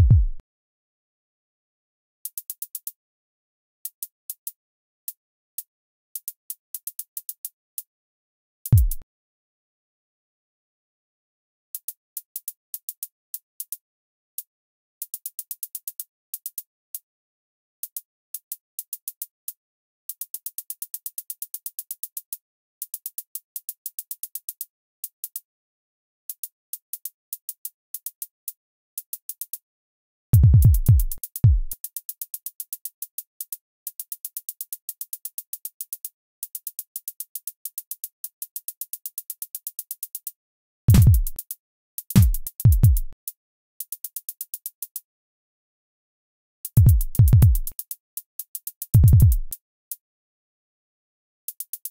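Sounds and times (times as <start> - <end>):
kick drum booms: 0.0 - 0.4, 8.8 - 9.0, 30.4 - 31.7, 40.9 - 41.4, 42.2 - 43.1, 46.8 - 47.7, 49.0 - 49.5
hi-hat ticks: 2.2 - 3.0, 3.8 - 7.9, 8.7 - 9.0, 11.7 - 17.1, 17.8 - 25.5, 26.3 - 29.7, 30.4 - 45.1, 46.6 - 50.0, 51.5 - 51.9.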